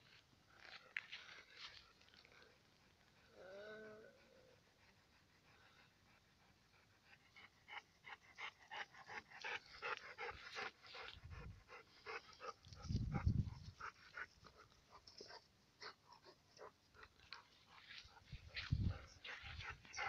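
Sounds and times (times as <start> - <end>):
dog panting: 4.2 - 20.0.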